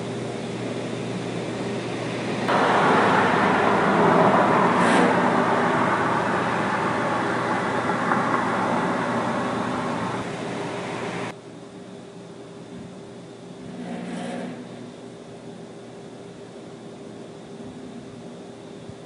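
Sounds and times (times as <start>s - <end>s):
refrigerated container units humming: 0.0s - 19.0s
loud rushing noise: 2.5s - 11.3s.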